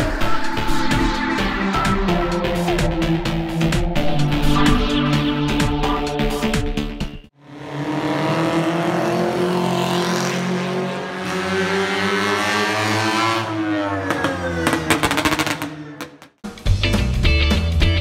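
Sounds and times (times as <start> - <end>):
racing car engine passing by: 7.4 - 16.0.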